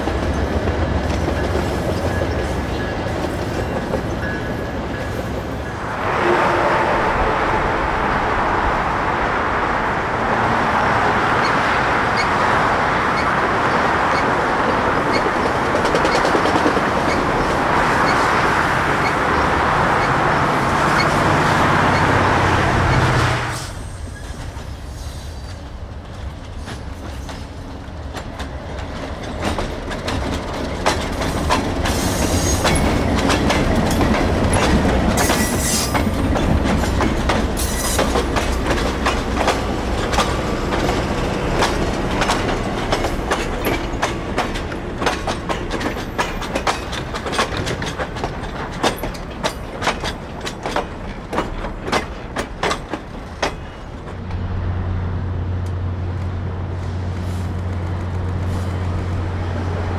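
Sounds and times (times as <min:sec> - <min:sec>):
train rushing past: 0:00.0 - 0:59.9
train wheels clicking over rail joints: 0:13.1 - 0:19.4, 0:22.8 - 0:54.6.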